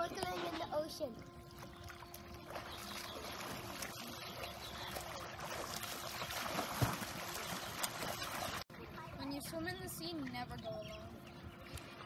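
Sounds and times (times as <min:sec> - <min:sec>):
water splashing in a pool: 0:00.0 - 0:09.2.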